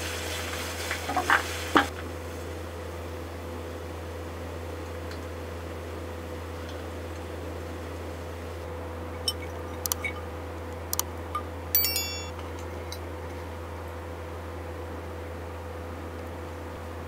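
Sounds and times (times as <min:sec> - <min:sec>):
ringing clink: 0:11.8 - 0:12.5.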